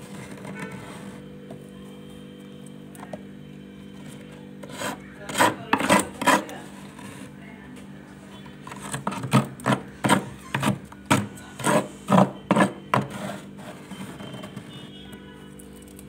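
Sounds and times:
spoon scraping frost: 0.0s - 1.3s, 4.1s - 7.4s, 8.4s - 15.0s.

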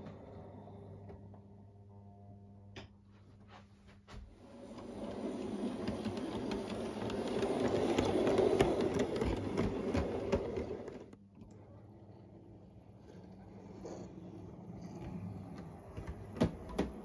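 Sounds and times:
wheels clicking on rails: 4.4s - 11.2s
model train wheels rumbling: 4.4s - 17.0s.

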